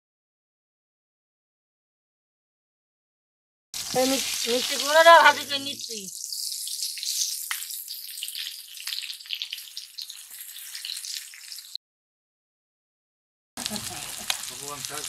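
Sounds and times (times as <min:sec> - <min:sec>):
food sizzling in oil: 0:03.8 - 0:11.8, 0:13.6 - 0:15.0.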